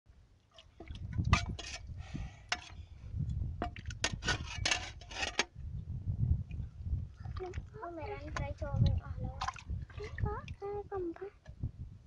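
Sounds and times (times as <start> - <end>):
spade scraping into damp earth: 1.3 - 2.8, 3.9 - 5.5.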